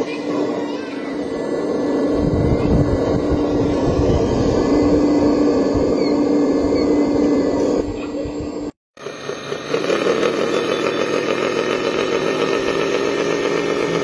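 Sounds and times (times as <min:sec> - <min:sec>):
hydraulic pump humming: 0:00.0 - 0:14.0
low rumble: 0:01.3 - 0:08.8
model excavator digging in sand: 0:09.0 - 0:14.0.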